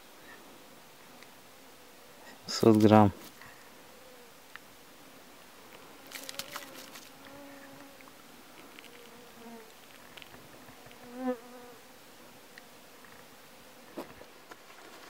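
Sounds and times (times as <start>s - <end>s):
flying insect buzzing: 5.7s - 14.4s.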